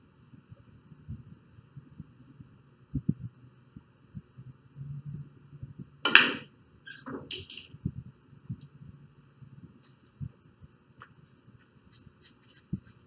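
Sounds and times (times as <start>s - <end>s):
cue striking ball: 6.0s - 7.7s
pool balls clacking: 6.0s - 7.8s.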